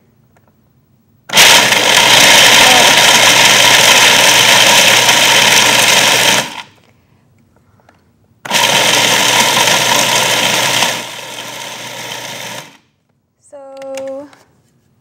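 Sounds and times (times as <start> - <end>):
food processor grinding nuts: 1.3 - 6.7, 8.5 - 12.8.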